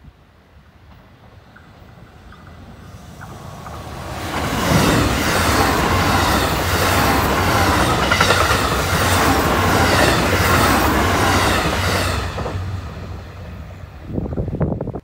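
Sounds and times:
train wheels clacking over rail joints: 0.9 - 12.7.

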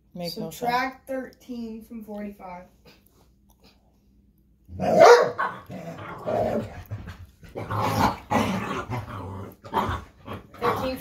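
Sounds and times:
dogs growling: 4.7 - 11.0.

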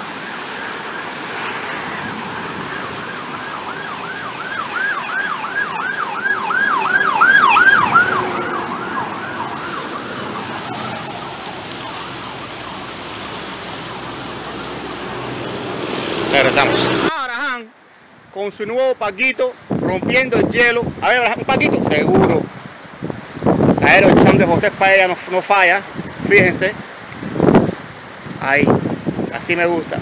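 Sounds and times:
emergency siren yelping: 0.0 - 17.1.

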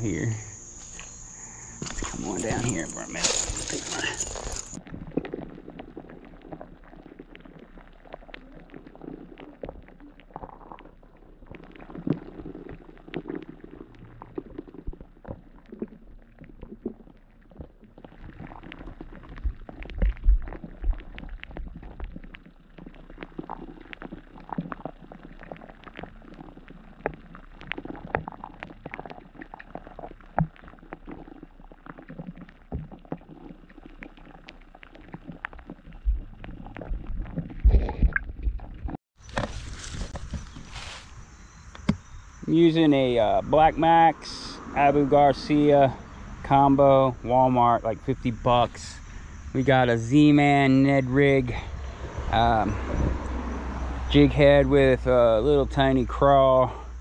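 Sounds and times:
underwater river rushing and gurgling: 4.5 - 39.0
small underwater clicks and ticks: 4.6 - 39.0.

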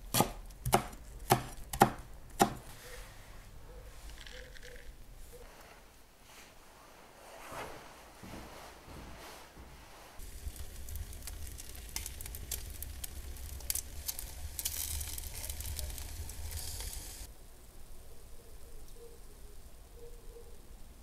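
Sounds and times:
wood fire crackling: 9.6 - 17.3
food sizzling on foil: 10.2 - 17.3
low rumble of flames: 10.2 - 17.3.

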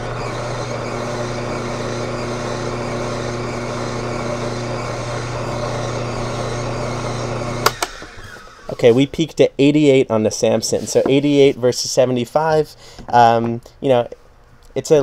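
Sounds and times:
juicer motor humming: 0.0 - 8.8.

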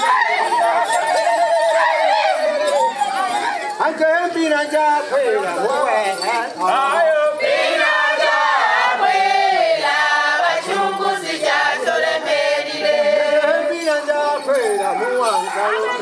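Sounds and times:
group singing in chorus: 7.2 - 13.8.

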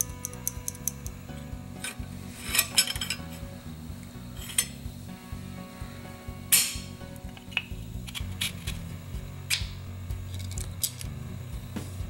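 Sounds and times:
metal sliding scrape: 1.8 - 3.5, 4.3 - 4.8.

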